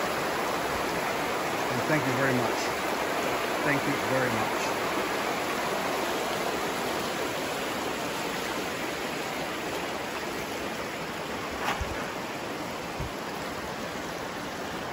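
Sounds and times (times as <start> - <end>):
river rushing over stones: 0.0 - 14.9
low bumps: 11.4 - 12.2.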